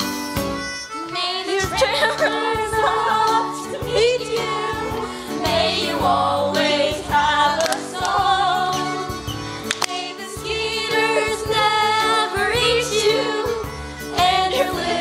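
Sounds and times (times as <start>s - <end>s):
instrumental backing with beat: 0.0s - 15.0s
children singing in chorus: 9.8s - 15.0s.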